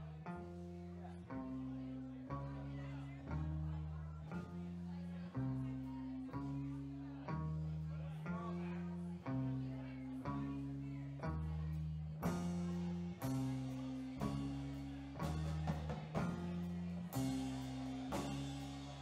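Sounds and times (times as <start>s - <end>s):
electric bass line: 0.0s - 19.0s
drum kit: 12.2s - 19.0s
electric guitar: 12.2s - 19.0s.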